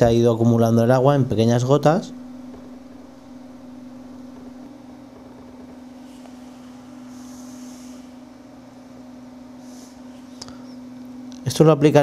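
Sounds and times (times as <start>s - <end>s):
steady low hum: 0.0s - 12.0s
faint hissy rustles: 5.9s - 8.3s.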